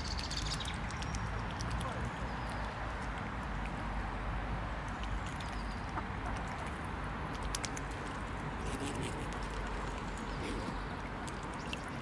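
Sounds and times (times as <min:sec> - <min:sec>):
steady background noise: 0:00.0 - 0:12.0
swans dabbling in water: 0:00.0 - 0:12.0.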